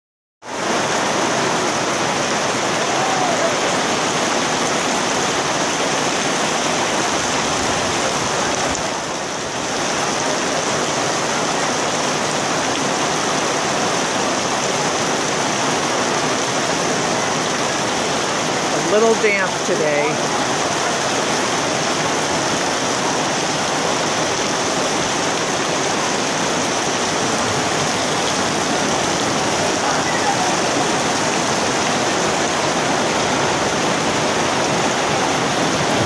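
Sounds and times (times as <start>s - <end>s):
heavy rain on a tent canopy: 0.4s - 36.0s.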